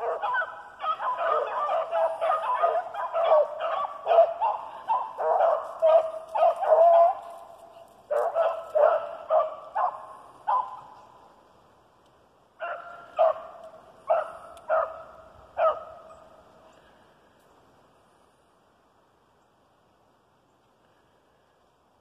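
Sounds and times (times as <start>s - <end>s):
hounds barking: 0.0s - 11.1s, 12.6s - 16.3s.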